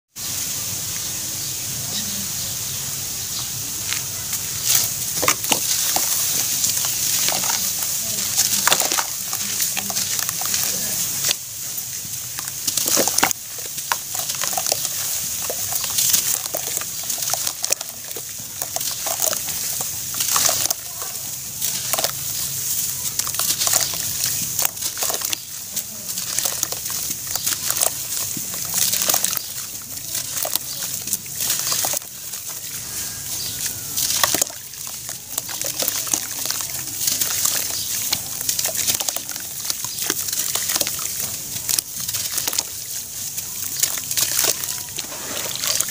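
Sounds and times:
fine crackle of ash: 0:03.9 - 0:45.9
ash crunching: 0:04.6 - 0:45.9
water sloshing: 0:04.6 - 0:45.9.

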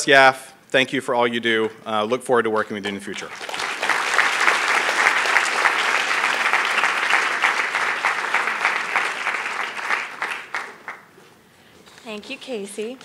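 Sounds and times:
audience applauding: 0:03.2 - 0:11.1.

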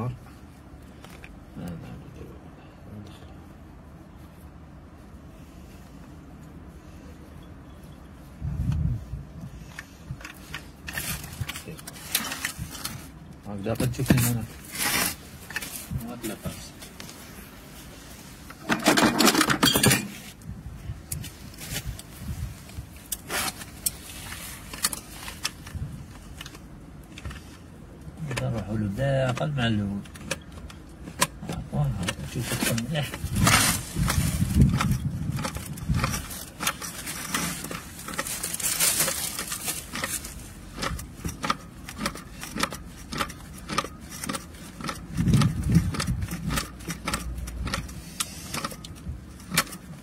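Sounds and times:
steady low rumble: 0:00.0 - 0:18.7, 0:19.9 - 0:50.0
plastic fitting rubbing and clicking: 0:29.2 - 0:50.0.

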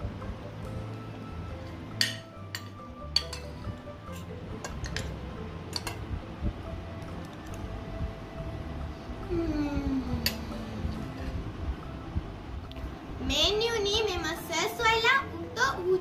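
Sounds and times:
soft background music: 0:00.0 - 0:16.0
cutlery clinking on plate: 0:02.0 - 0:03.5, 0:04.1 - 0:06.0.

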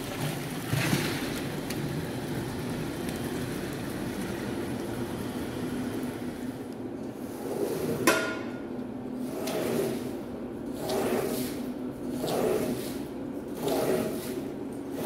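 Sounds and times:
water pouring onto wet rug: 0:00.0 - 0:05.0
squeegee swishing foam: 0:09.2 - 0:15.0.

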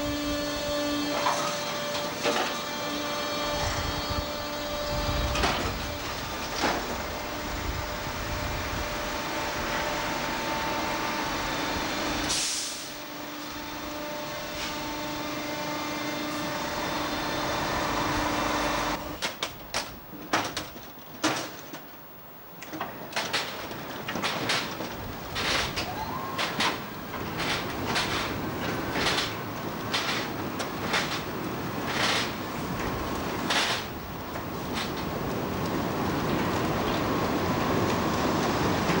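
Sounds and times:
machinery droning: 0:00.0 - 0:19.2
short hiss of air: 0:12.2 - 0:13.0.

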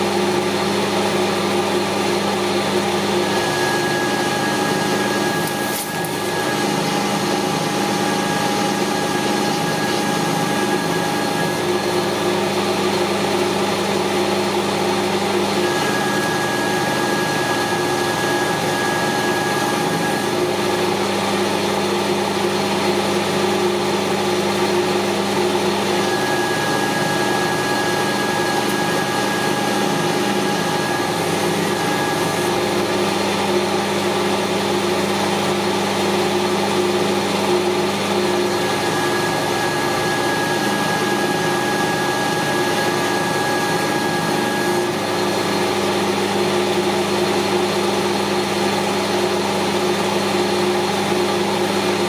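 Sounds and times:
metal lathe motor and gears humming: 0:00.0 - 0:52.0.

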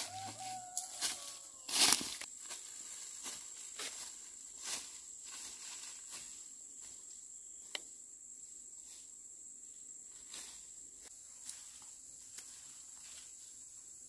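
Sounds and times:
footsteps crunching dry leaves: 0:00.0 - 0:07.1
insects droning: 0:00.0 - 0:14.0.

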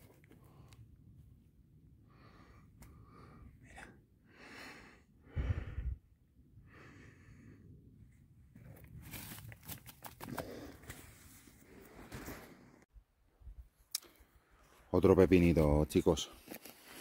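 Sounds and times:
person breathing softly: 0:02.0 - 0:08.0.

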